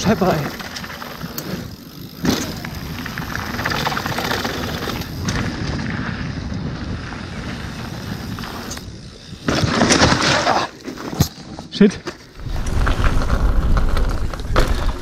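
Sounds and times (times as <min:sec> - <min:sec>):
bike rattling: 0:00.0 - 0:15.0
bike tyres rolling on dirt: 0:00.0 - 0:15.0
wind on microphone: 0:12.4 - 0:15.0.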